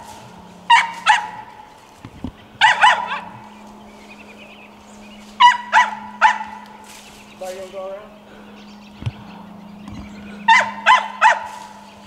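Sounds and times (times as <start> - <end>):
dog barking: 0.7 - 1.5, 2.6 - 3.4, 5.4 - 6.7, 10.5 - 11.7.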